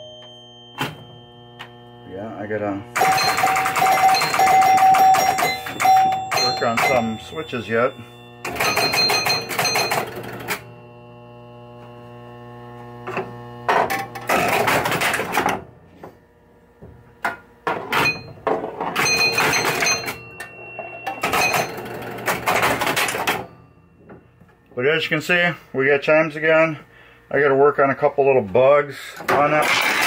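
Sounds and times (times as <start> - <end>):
pinball chimes ringing: 0.0 - 11.0, 13.7 - 15.7, 17.7 - 25.5, 29.3 - 30.0
steady machine hum: 0.0 - 30.0
relays and score reels clattering: 3.0 - 10.6, 17.9 - 23.5, 29.2 - 30.0.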